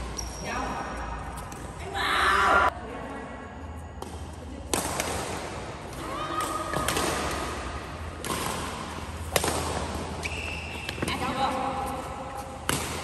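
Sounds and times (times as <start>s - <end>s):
shoes squeaking on court: 0.0s - 1.8s, 9.9s - 13.0s
racket hitting shuttlecock: 4.0s - 13.0s.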